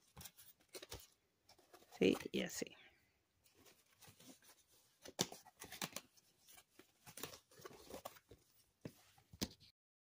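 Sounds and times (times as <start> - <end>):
paper rustles and light taps: 3.5 - 9.7.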